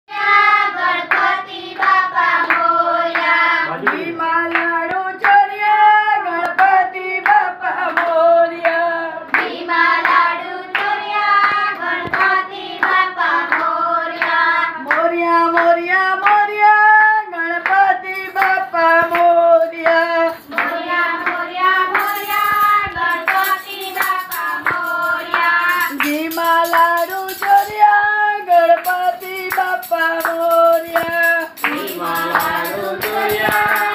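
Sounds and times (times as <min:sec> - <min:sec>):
group singing devotional song: 0:00.1 - 0:33.9
hand claps: 0:01.1 - 0:05.8, 0:06.4 - 0:33.9.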